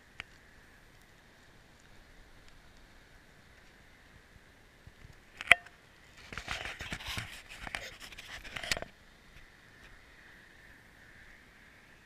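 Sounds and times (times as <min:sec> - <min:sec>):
cable scraping over shingles: 0:06.1 - 0:09.0.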